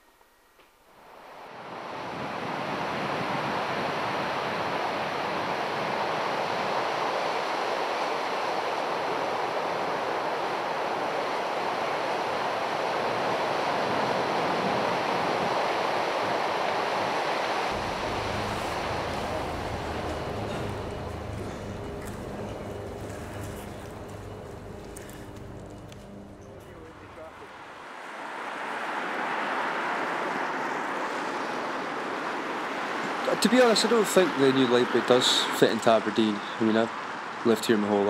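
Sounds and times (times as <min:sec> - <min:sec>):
sea surf washing onto beach: 0:01.3 - 0:25.3, 0:26.8 - 0:38.0
low hum: 0:17.7 - 0:27.8.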